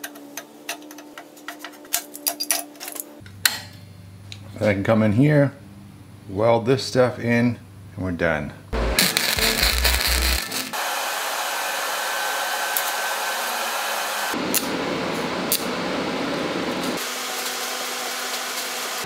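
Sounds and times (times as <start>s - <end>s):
welding arc hissing: 8.8s - 10.8s.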